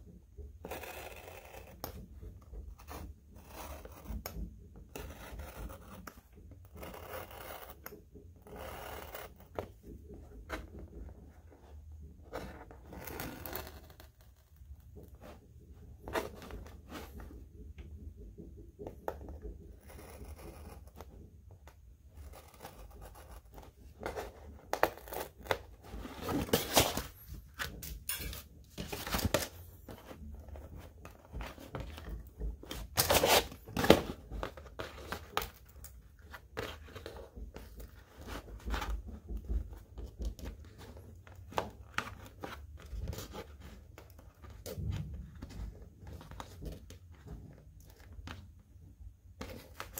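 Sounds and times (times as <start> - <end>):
cardboard rustling: 23.6 - 48.6, 49.3 - 49.9.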